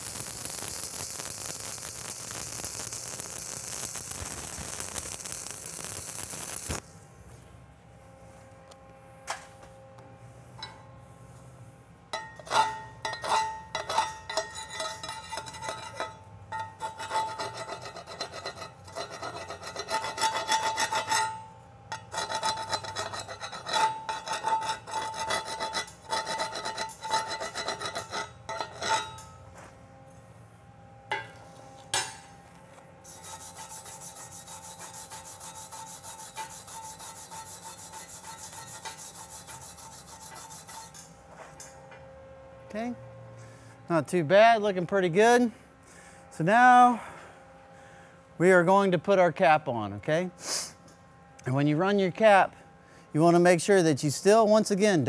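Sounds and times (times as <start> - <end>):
wire brushing a weld: 0.0 - 7.4, 12.4 - 29.4, 32.7 - 41.2
metal scraping and tapping metal: 10.6 - 10.9, 12.1 - 29.4, 31.1 - 32.3, 33.1 - 41.8.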